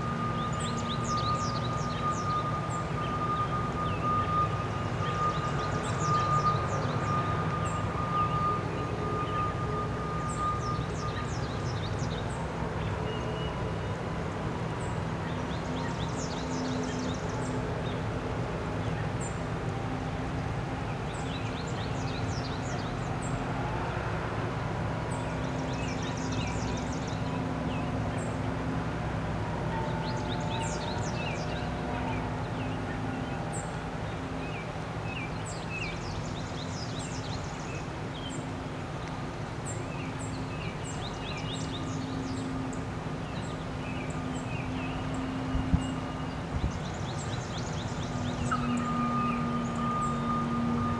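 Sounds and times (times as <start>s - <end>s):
songbirds chirping: 0.0s - 50.9s.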